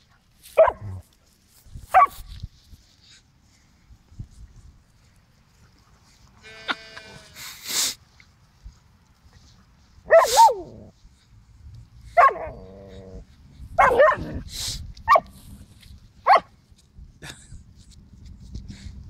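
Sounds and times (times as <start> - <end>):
dogs barking and yipping: 0.5 - 1.0, 1.9 - 2.2, 9.4 - 10.9, 12.1 - 14.4, 15.0 - 15.4, 16.2 - 16.5
dog low growl: 12.3 - 13.3.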